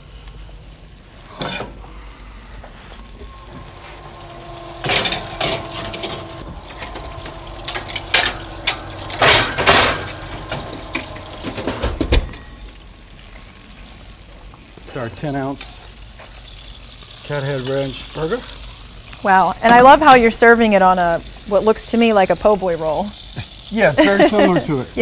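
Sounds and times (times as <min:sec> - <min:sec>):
metal skillets scraping oven racks: 0:01.2 - 0:01.8, 0:03.0 - 0:12.8
sharp clanks: 0:04.8 - 0:12.5.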